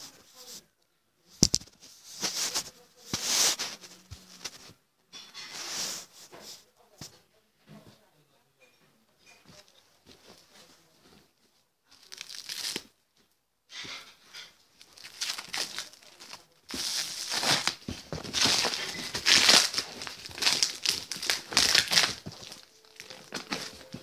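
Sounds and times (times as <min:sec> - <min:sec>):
short scrapes: 0:01.9 - 0:06.6
plastic crinkling and tearing: 0:11.9 - 0:12.9, 0:14.8 - 0:24.0
scissors cutting plastic: 0:15.0 - 0:24.0.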